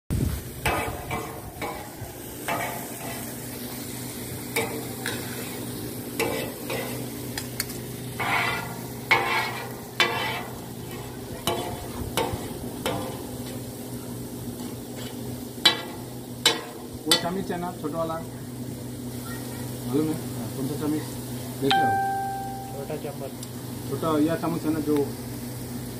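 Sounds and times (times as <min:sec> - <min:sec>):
frying sizzle: 0:00.1 - 0:25.9
spatula scraping metal griddle: 0:00.6 - 0:03.8, 0:04.6 - 0:13.6, 0:14.6 - 0:17.3.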